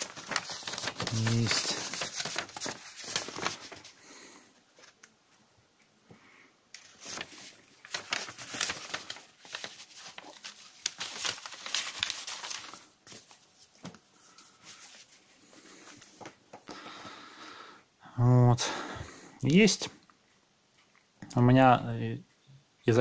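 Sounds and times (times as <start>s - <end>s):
paper rustling and crackling: 0.0s - 5.1s, 6.7s - 16.6s.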